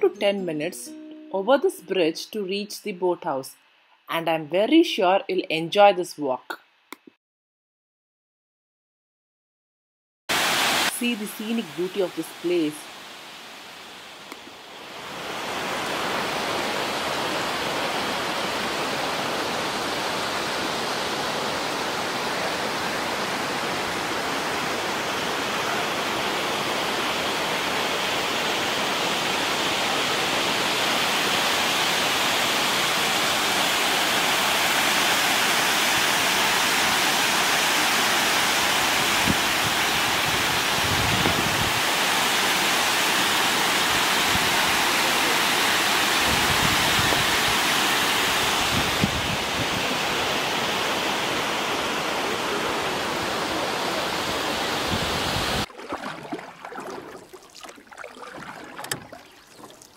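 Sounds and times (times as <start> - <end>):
water rushing over rocks: 12.9 - 59.9.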